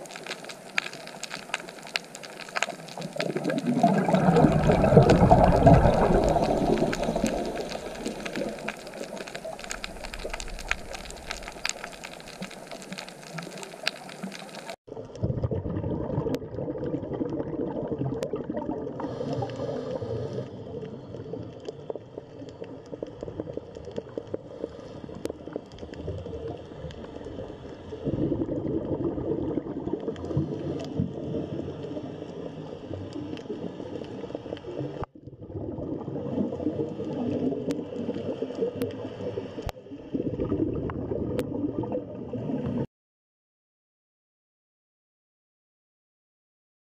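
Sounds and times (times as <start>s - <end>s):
crackle of fine ticks: 0.0s - 14.8s, 19.2s - 28.0s, 29.9s - 35.1s, 37.0s - 39.8s
dull low water sound: 0.0s - 42.9s
underwater bubbling: 0.0s - 42.9s.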